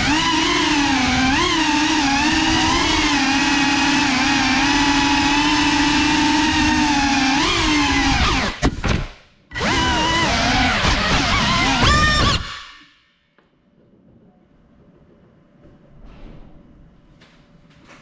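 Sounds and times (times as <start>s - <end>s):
drone motors whining: 0.0s - 8.7s, 9.5s - 12.9s.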